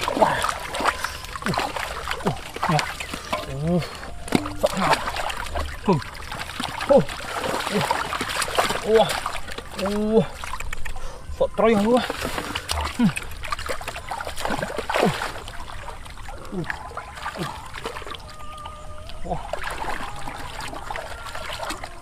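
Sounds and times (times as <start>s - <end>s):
hands scooping through mud: 0.0s - 11.0s
muddy water splashing: 0.0s - 22.0s.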